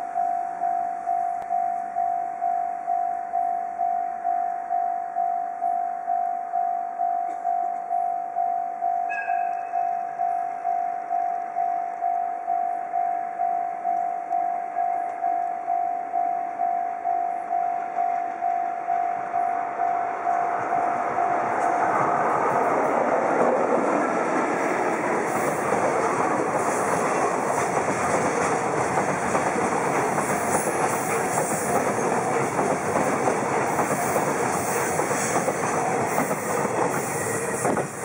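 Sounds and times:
level crossing bell dinging: 0:00.1 - 0:21.4
freight train wheels clattering: 0:20.2 - 0:38.0.

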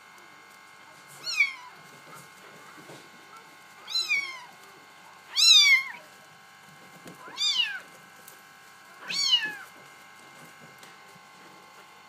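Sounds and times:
kitten mewing: 0:03.8 - 0:04.5, 0:05.3 - 0:06.0, 0:07.2 - 0:07.8, 0:09.0 - 0:09.6.

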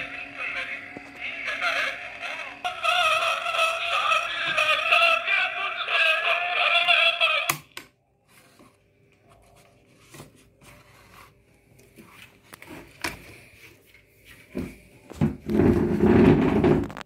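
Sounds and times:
plastic casing rubbing and scraping: 0:15.2 - 0:17.0.

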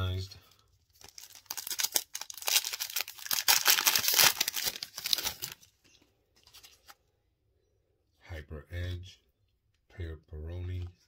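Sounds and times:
foil wrapper tearing and crinkling: 0:01.0 - 0:05.7.

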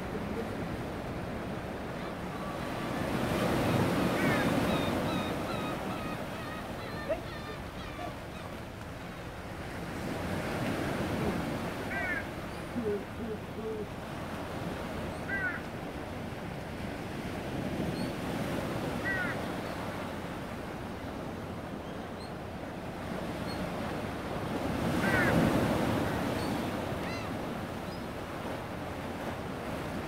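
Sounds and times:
surf washing over rocks: 0:03.0 - 0:05.6, 0:24.3 - 0:27.2.

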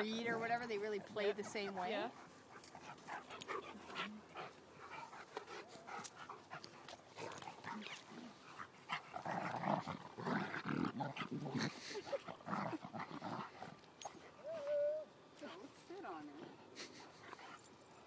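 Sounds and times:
dogs playing: 0:00.0 - 0:14.6, 0:15.3 - 0:18.0.

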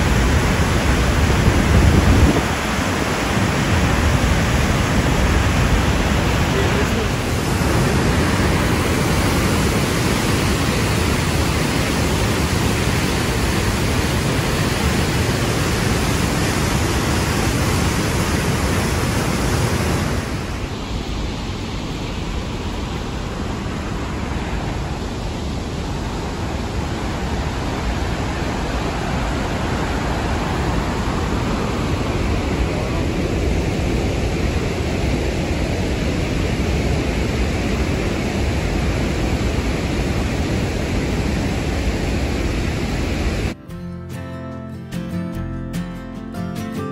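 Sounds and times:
waterfall rushing: 0:00.0 - 0:43.6.

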